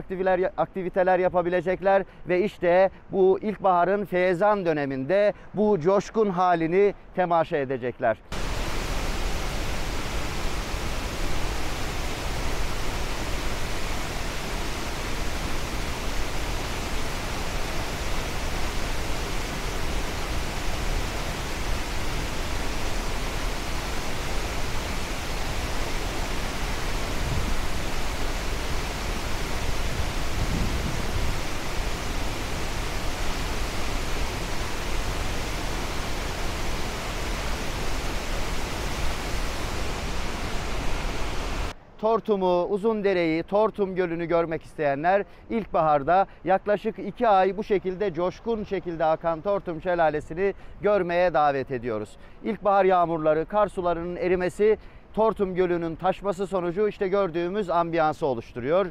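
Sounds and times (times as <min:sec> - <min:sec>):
waterfall rushing: 0:08.3 - 0:41.8.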